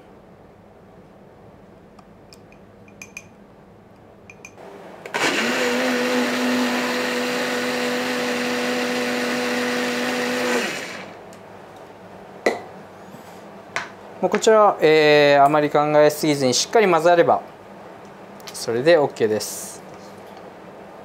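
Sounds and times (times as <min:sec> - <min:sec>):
blender motor running: 0:05.1 - 0:11.2.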